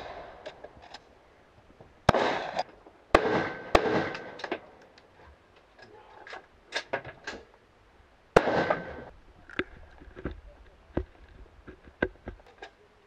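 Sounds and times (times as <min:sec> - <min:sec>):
rifle shots echoing: 0:02.1 - 0:04.7, 0:08.4 - 0:09.1.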